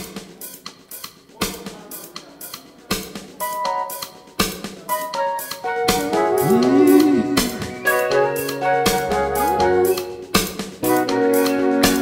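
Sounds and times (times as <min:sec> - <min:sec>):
drum kit playing: 0:03.0 - 0:12.0
held keyboard chords: 0:04.9 - 0:12.0.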